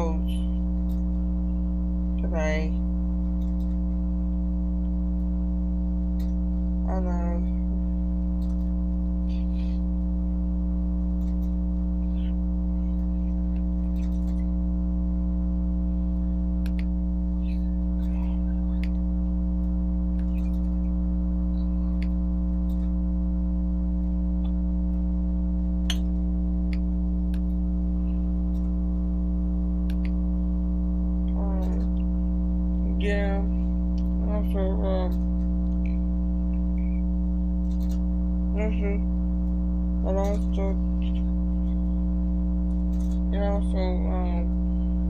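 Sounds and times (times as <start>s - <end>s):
electrical hum: 0.0s - 45.0s
faint clicks: 16.6s - 16.9s, 29.8s - 30.2s.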